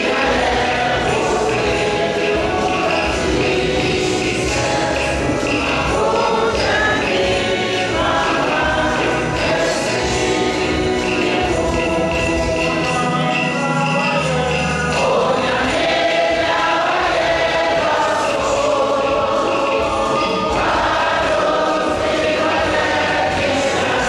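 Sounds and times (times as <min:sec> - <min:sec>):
choir singing a hymn: 0:00.0 - 0:24.0.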